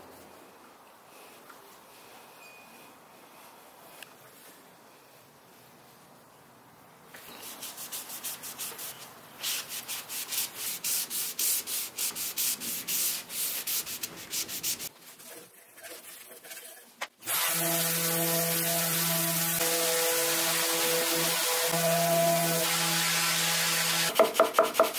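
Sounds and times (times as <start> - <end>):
sandpaper rubbing on wood: 7.4 - 24.9.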